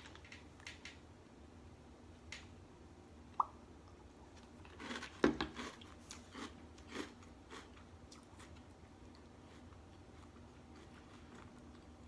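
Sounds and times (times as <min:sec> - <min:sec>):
person crunching cereal: 0:04.6 - 0:08.6.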